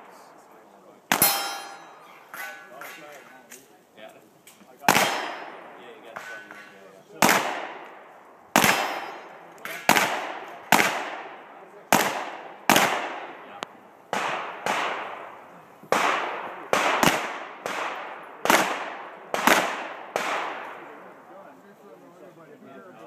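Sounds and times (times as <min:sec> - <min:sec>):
pistol shots with echo: 0:01.1 - 0:02.1, 0:04.8 - 0:21.0.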